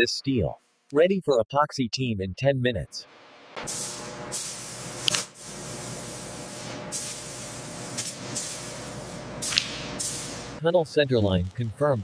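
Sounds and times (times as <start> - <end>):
spray guns hissing: 3.6 - 10.6.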